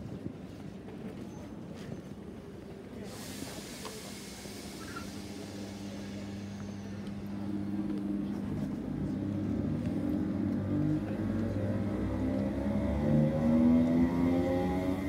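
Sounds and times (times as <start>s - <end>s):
traction motor hum: 5.0s - 15.0s
rising whine: 5.2s - 15.0s.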